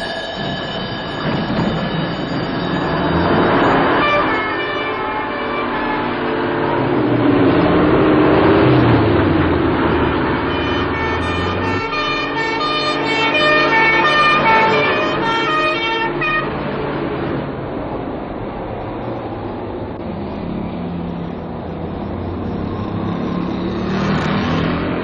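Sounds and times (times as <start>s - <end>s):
fire engine siren wailing: 0.0s - 17.3s
truck engine: 0.0s - 25.0s.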